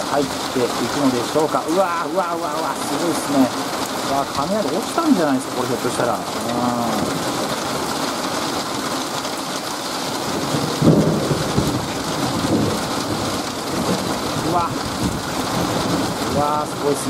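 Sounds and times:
heavy rain falling: 0.0s - 17.0s
thunder clap rumbling: 10.3s - 17.0s.

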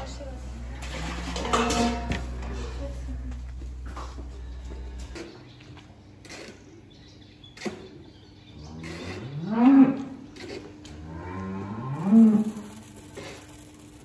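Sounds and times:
cow mooing: 8.7s - 10.2s, 10.9s - 12.8s.

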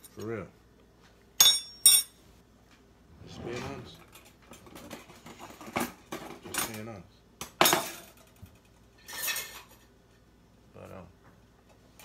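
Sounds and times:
cutlery and dishes clinking: 7.6s - 9.9s.

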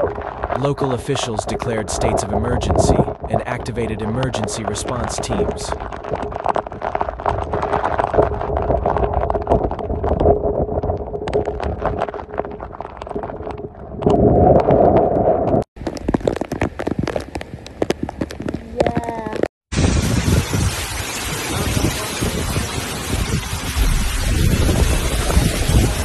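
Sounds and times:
raindrops ticking on microphone: 0.0s - 15.0s, 15.8s - 26.0s
wind rumbling on microphone: 0.0s - 26.0s.

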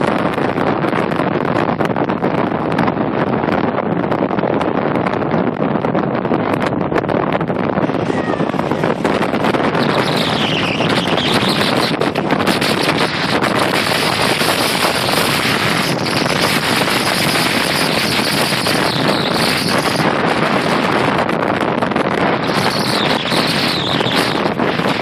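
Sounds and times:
storm wind blowing: 0.0s - 25.0s
heavy surf breaking: 7.5s - 22.7s.

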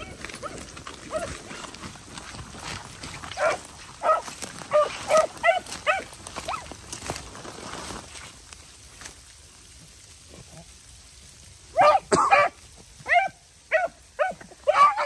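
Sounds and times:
dog barking: 3.3s - 6.7s, 11.7s - 15.0s.

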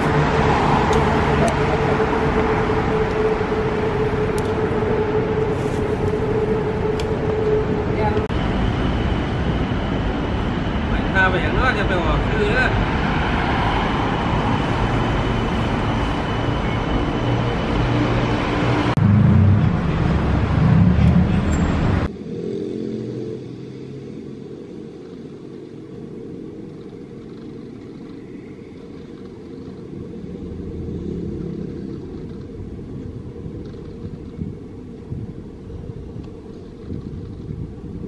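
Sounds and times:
heavy engine rumbling: 0.0s - 13.1s, 13.8s - 22.1s
muffled distant traffic rumble: 0.0s - 38.0s
vehicles passing on busy street: 0.0s - 38.0s.

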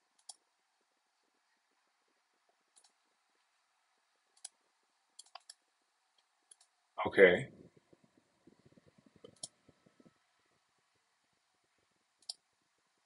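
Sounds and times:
computer mouse clicks: 0.2s - 0.4s, 2.7s - 3.0s, 4.4s - 4.6s, 5.2s - 5.6s, 6.2s - 6.8s, 7.9s - 10.1s, 12.2s - 12.4s.

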